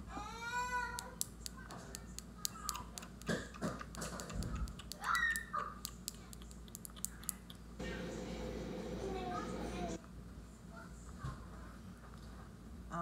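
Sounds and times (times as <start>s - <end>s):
small sharp clicks and taps: 0.9s - 7.6s.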